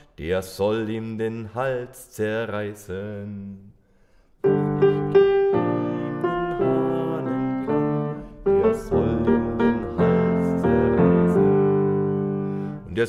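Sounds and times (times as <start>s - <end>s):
grand piano chords: 4.4s - 13.0s.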